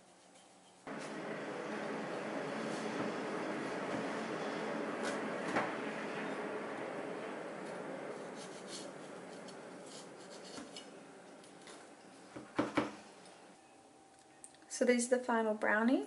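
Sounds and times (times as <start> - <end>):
steady background noise: 0.8 - 14.9.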